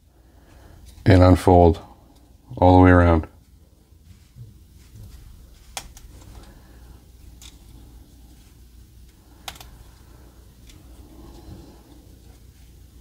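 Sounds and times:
sharp plastic clicks: 0:09.4 - 0:09.8.

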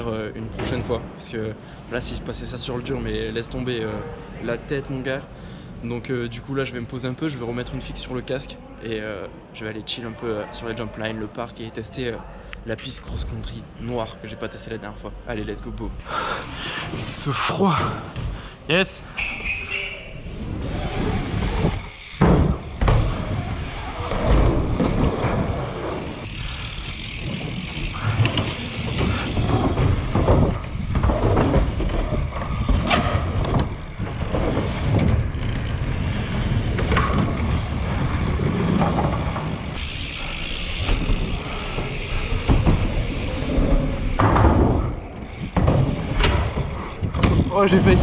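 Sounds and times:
tyre rumble: 0:20.2 - 0:48.0
bike landing thumps: 0:20.8 - 0:48.0.

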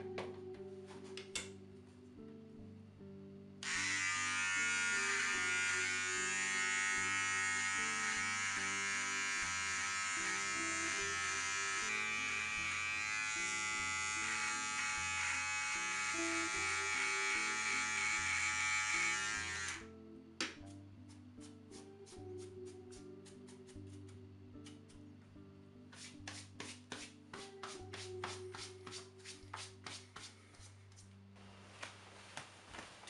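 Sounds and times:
background music: 0:00.0 - 0:33.0
electric shaver buzzing: 0:03.6 - 0:19.9.

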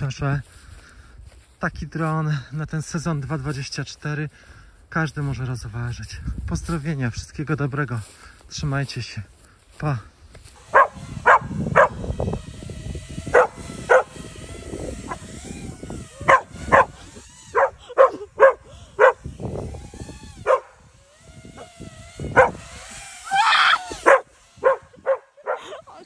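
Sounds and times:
dog barking: 0:10.7 - 0:12.0, 0:16.3 - 0:16.9, 0:17.6 - 0:19.2, 0:20.4 - 0:20.7, 0:24.0 - 0:25.6.

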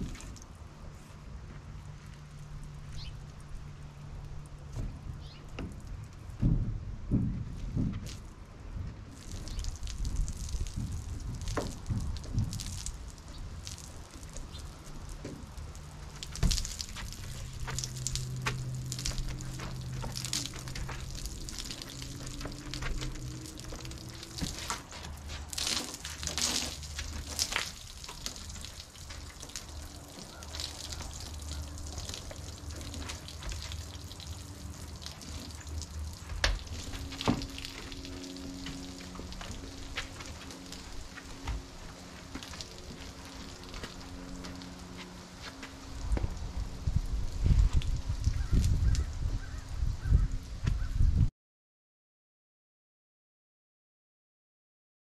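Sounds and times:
wet mop scrubbing: 0:16.2 - 0:45.8.

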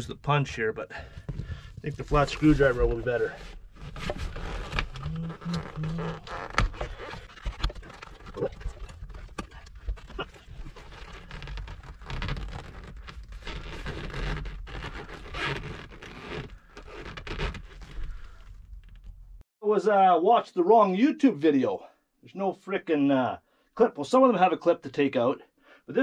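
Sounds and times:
tool clicking and scraping on armrest: 0:03.5 - 0:18.0.

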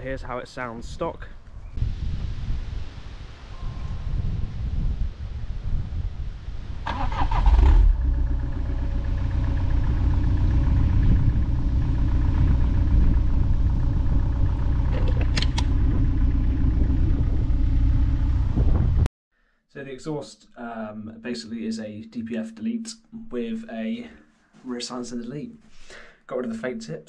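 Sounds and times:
diesel engine starting and idling: 0:06.8 - 0:19.1.

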